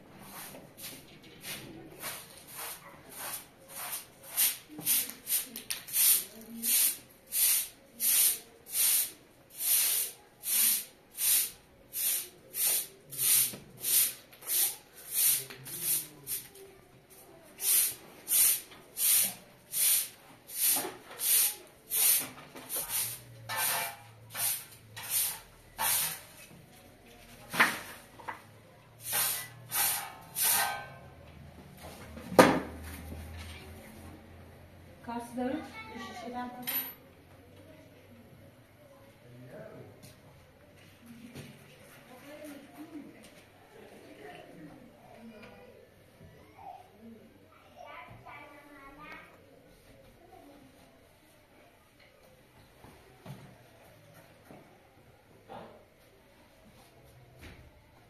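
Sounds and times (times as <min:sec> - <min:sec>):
broom sweeping floor: 0:00.1 - 0:28.4, 0:29.0 - 0:31.1.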